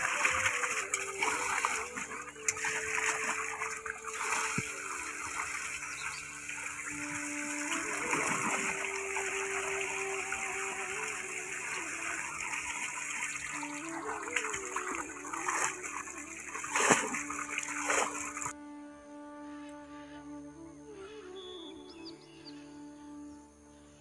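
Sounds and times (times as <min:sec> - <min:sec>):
water gushing from a hose: 0:00.0 - 0:18.5
water splashing into metal pot: 0:00.0 - 0:18.5.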